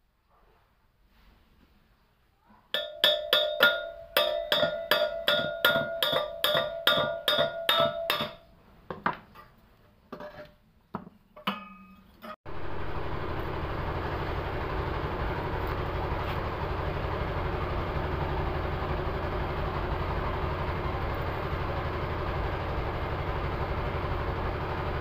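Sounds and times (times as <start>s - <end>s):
hammer tapping on metal hub: 2.8s - 9.1s.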